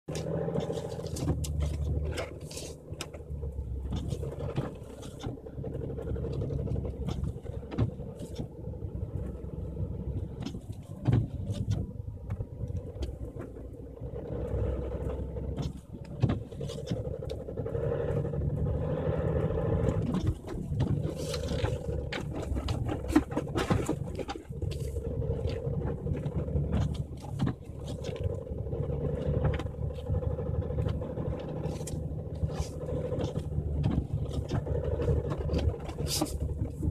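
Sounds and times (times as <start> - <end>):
diesel engine running under load: 0.0 - 36.9
tyres crunching through snow: 0.1 - 36.9.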